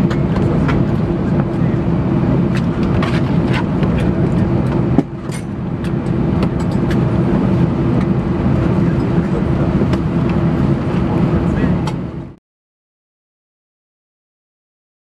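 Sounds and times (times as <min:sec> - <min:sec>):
jet engines idling hum: 0:00.0 - 0:12.4
short clicks in cabin: 0:11.8 - 0:12.0.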